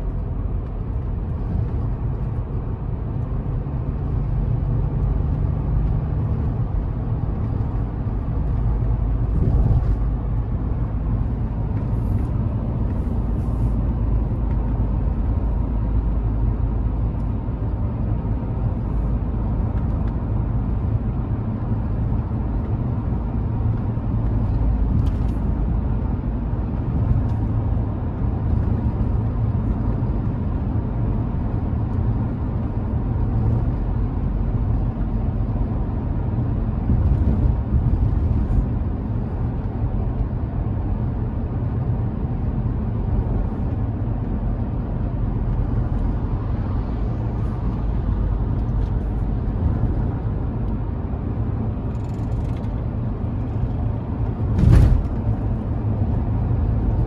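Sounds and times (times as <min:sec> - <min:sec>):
car road and tyre noise: 0:00.0 - 0:57.0.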